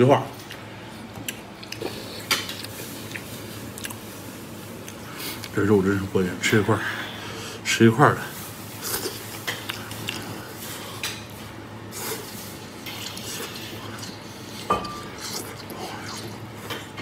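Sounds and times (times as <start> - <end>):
chewing and slurping food: 1.3 - 4.2, 8.8 - 11.3, 11.9 - 17.0.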